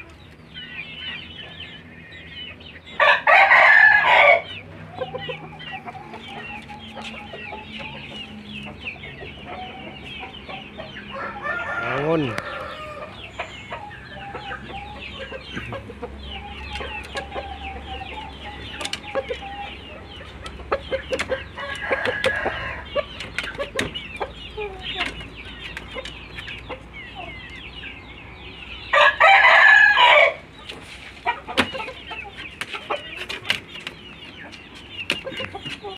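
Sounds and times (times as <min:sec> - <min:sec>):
chickens clucking: 0:00.0 - 0:35.9
rooster crowing: 0:03.0 - 0:04.5, 0:11.1 - 0:13.2, 0:21.6 - 0:22.9, 0:28.9 - 0:30.4.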